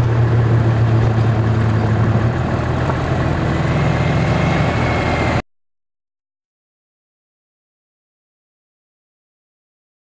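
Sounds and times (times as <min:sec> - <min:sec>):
driving and wind noise: 0:00.0 - 0:05.4
vehicle engine running: 0:00.0 - 0:05.4.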